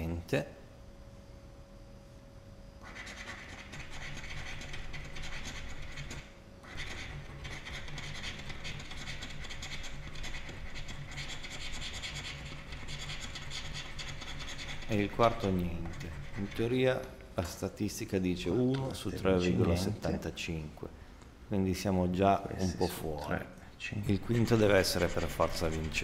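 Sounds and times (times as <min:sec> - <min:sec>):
scratch card being scratched: 0:02.8 - 0:16.8, 0:24.1 - 0:26.0.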